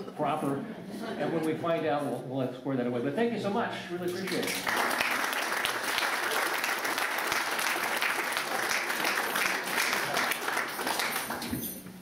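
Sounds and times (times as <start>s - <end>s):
audience applauding: 4.2s - 11.7s.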